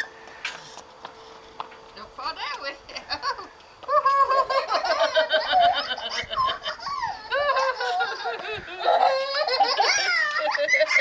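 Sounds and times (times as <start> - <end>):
young child laughing: 3.4 - 11.0.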